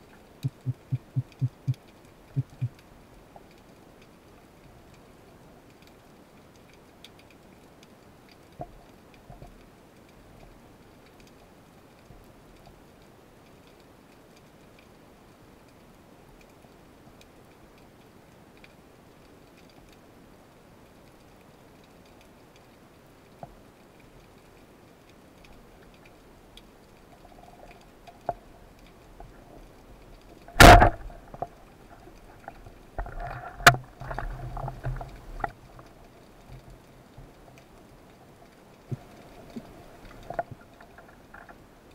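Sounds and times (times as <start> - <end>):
scattered underwater ticks: 0.0 - 41.9
knocks and rattles of struggling fish: 0.4 - 2.8, 27.2 - 37.4, 38.8 - 41.7
sharp click: 30.5 - 31.1
speargun firing crack: 30.6 - 31.2.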